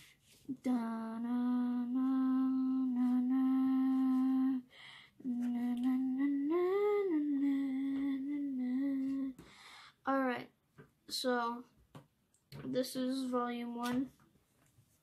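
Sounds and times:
person humming: 0.5s - 9.4s.

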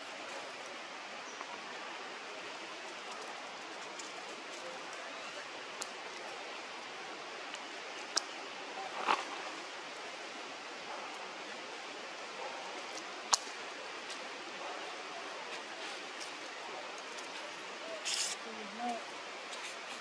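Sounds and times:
forest ambience hiss: 0.0s - 20.0s
sharp clicks or snaps: 13.3s - 13.6s
short rustle: 17.0s - 20.0s.

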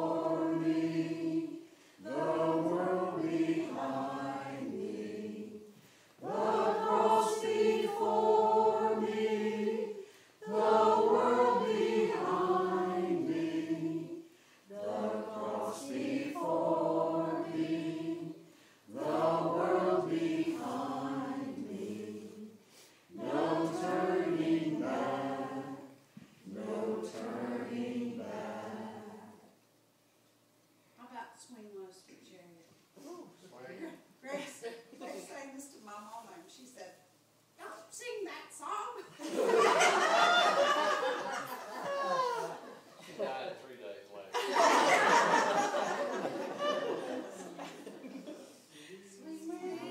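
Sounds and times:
choir singing a cappella: 0.0s - 29.6s, 39.2s - 43.0s, 44.3s - 49.9s.

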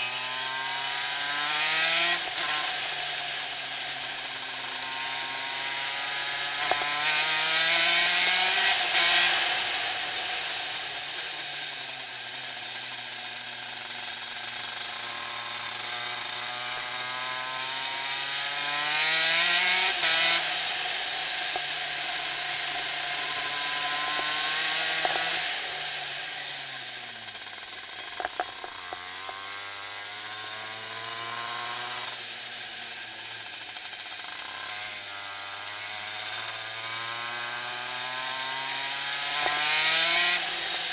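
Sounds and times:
kart engine revving: 0.0s - 40.9s
sharp clicks: 28.0s - 29.0s.

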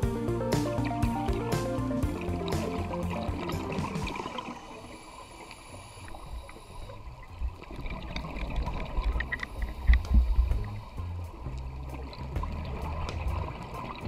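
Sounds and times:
muffled underwater noise: 2.0s - 14.0s
faint clicks: 5.4s - 10.7s.

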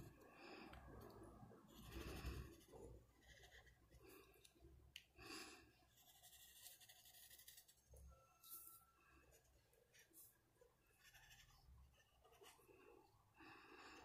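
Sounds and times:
marker scratching on paper: 1.7s - 3.8s, 5.9s - 7.8s, 10.9s - 12.6s.

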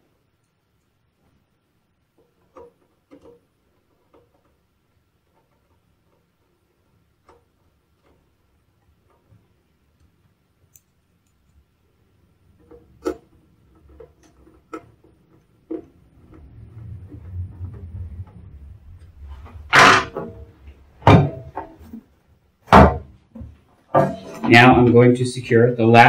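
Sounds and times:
low rumble: 15.8s - 21.6s.

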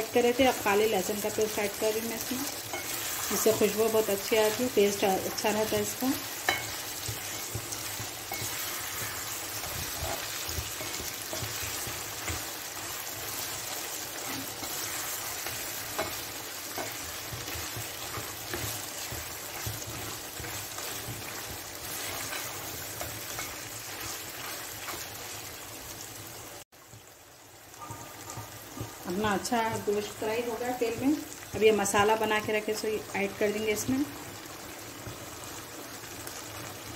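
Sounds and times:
meat sizzling in oil: 0.0s - 36.9s
spatula scraping a pan: 6.2s - 25.4s.

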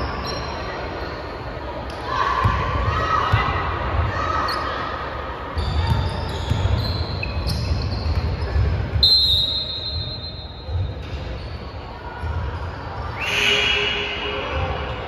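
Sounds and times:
sneaker squeak: 0.0s - 2.6s, 4.3s - 15.0s
whistle blast: 9.0s - 10.8s, 13.1s - 14.7s.

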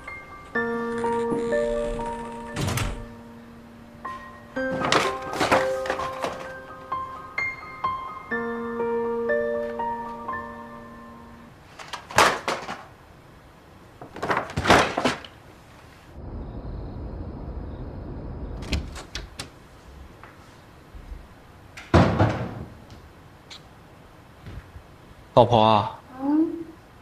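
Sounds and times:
paper gift bag rustling: 4.6s - 6.8s
city ambience rumble: 15.4s - 21.9s
thud: 21.9s - 22.8s.

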